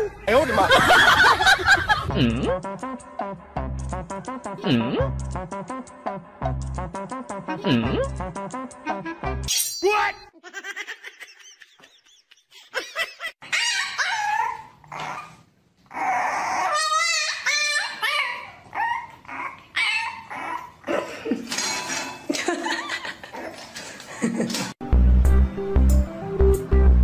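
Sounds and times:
dog barking and yipping: 13.4 - 15.4, 16.4 - 20.8.

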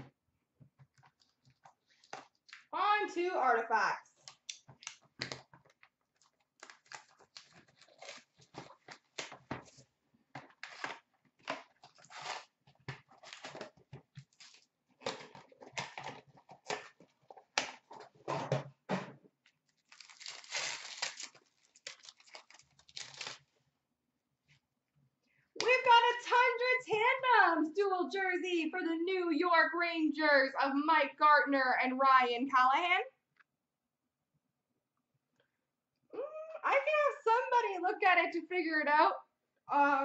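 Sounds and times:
foil wrapper crinkling and tearing: 6.1 - 9.8, 10.6 - 18.0, 19.7 - 23.6.

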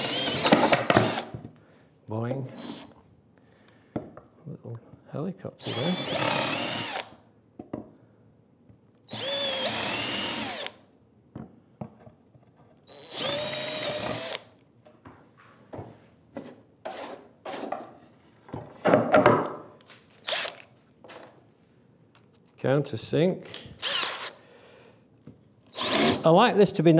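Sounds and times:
cordless drill boring wood: 0.0 - 1.3, 2.6 - 2.9, 5.6 - 7.1, 9.1 - 10.8, 12.9 - 14.5, 20.2 - 20.5, 23.8 - 24.4, 25.7 - 26.2.

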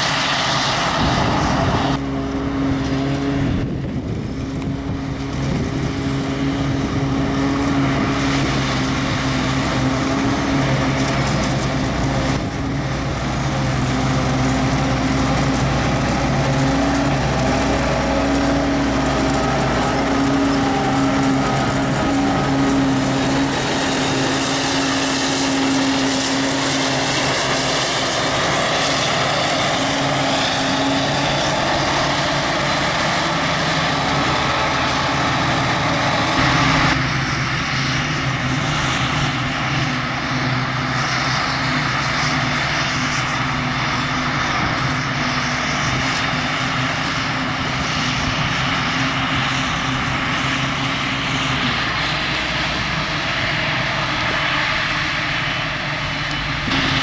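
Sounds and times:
forage harvester chopping grass: 0.0 - 57.0
tractor engine drone: 0.0 - 57.0.

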